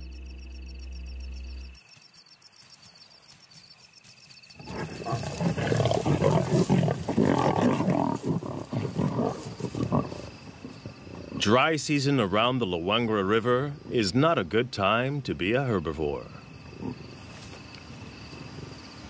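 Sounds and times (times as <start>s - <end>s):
crickets chirping: 0.0s - 19.0s
lions growling and snarling: 4.5s - 11.8s, 16.7s - 17.5s.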